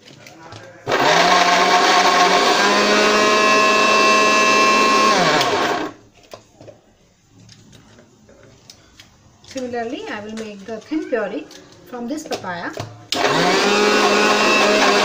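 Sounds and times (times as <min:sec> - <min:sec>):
mixer grinder motor whine: 0:00.9 - 0:06.0, 0:13.1 - 0:15.0.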